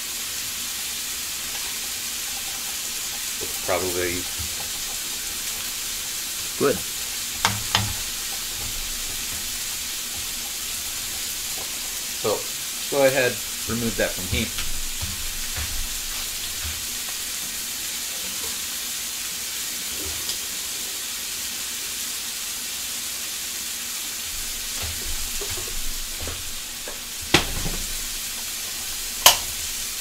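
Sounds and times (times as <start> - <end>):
food sizzling in skillet: 0.0 - 30.0
sharp knocks: 6.8 - 10.4.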